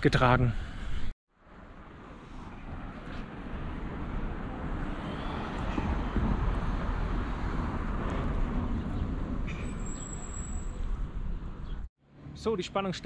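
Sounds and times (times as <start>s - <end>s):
low traffic rumble: 0.6s - 13.0s
cars passing: 1.4s - 13.0s.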